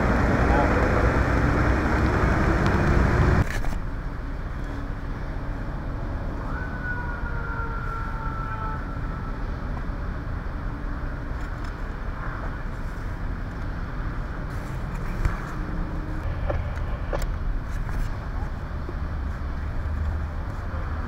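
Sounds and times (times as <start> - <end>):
low rumble of vehicles: 0.0 - 21.0.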